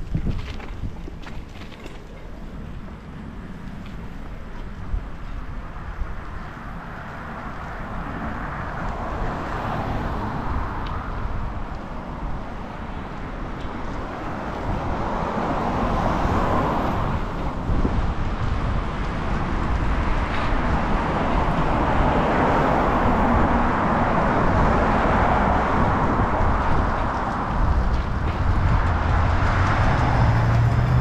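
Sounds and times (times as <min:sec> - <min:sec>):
road traffic: 0:00.0 - 0:31.0
wind rushing: 0:14.7 - 0:31.0.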